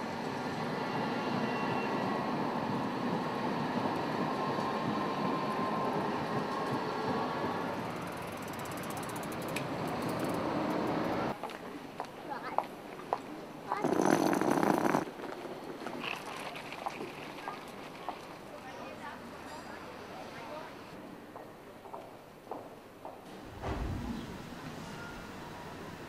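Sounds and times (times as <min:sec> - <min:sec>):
tram rattling past on rails: 0:00.0 - 0:11.4, 0:13.6 - 0:21.0, 0:23.3 - 0:26.0
faint wheel squeal: 0:00.8 - 0:02.2.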